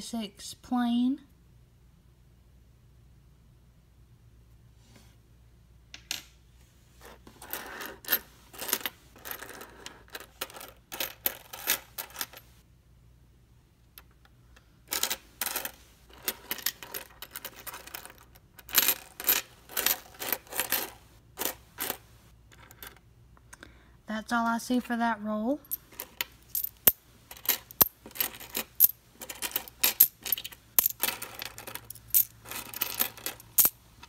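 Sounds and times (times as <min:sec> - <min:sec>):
coins clinking on wooden table: 0:07.0 - 0:12.5, 0:14.9 - 0:23.0, 0:25.6 - 0:33.8.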